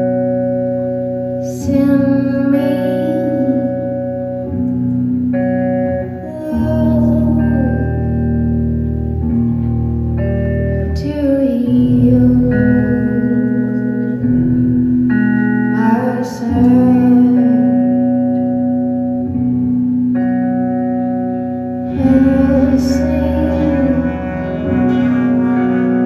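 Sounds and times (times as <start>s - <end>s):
acoustic guitar: 0.0s - 26.0s
keyboard chords: 0.0s - 26.0s.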